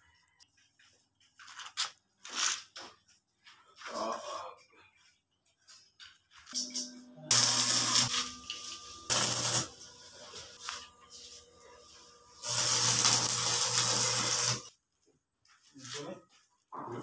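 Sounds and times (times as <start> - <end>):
welding arc crackling: 6.6 - 10.9, 11.8 - 14.7
steady hum: 6.6 - 14.7.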